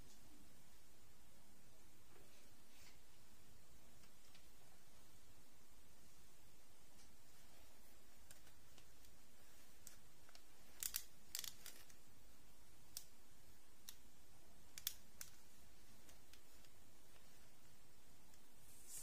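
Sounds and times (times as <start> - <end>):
faint steady hiss: 0.0 - 19.0
small clicks and snips: 9.8 - 12.0, 12.9 - 13.2, 13.8 - 14.1, 14.7 - 15.4.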